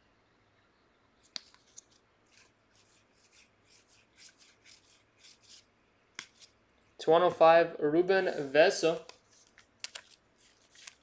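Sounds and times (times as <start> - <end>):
trading cards swishing: 1.2 - 6.6, 8.2 - 11.0.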